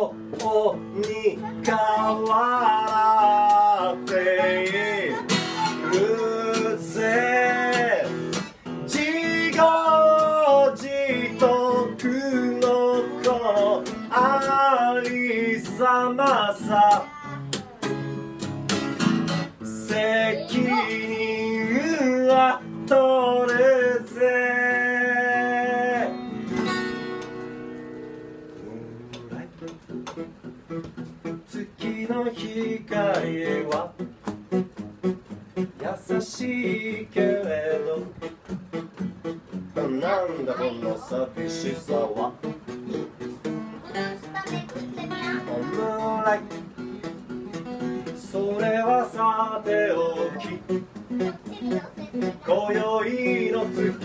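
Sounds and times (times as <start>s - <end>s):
strummed acoustic guitar: 0.0s - 54.0s.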